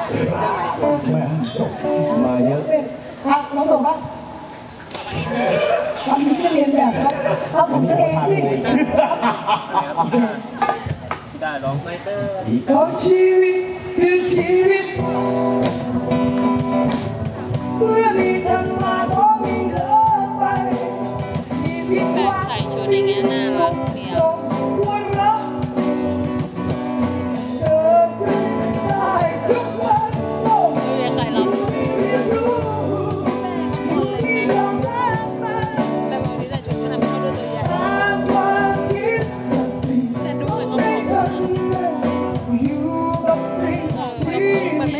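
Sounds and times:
guitars: 0:00.0 - 0:11.1, 0:12.7 - 0:44.9
drums: 0:00.0 - 0:44.9
person singing into a microphone: 0:12.7 - 0:15.5, 0:17.5 - 0:25.8, 0:27.3 - 0:44.9.

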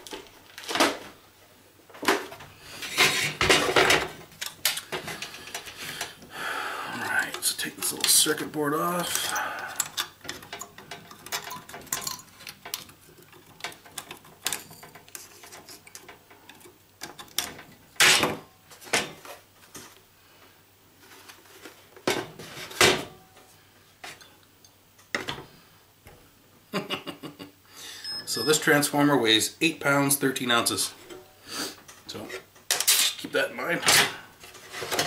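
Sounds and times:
metal clinks and knocks: 0:09.1 - 0:17.7.

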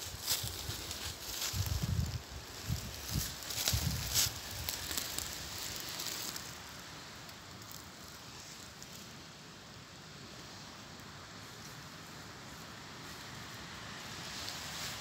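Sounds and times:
dry leaves crunching underfoot: 0:00.0 - 0:09.1, 0:13.0 - 0:15.0
faint hiss: 0:00.0 - 0:15.0.

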